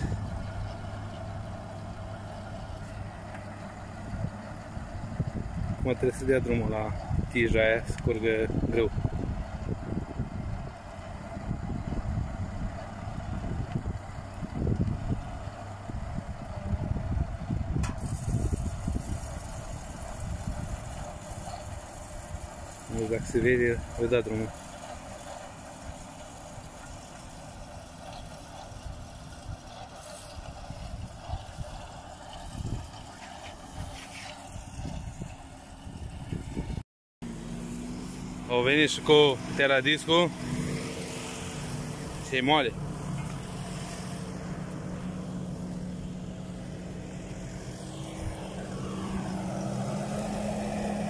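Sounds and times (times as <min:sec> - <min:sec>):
tractor engine running: 0:00.0 - 0:51.0.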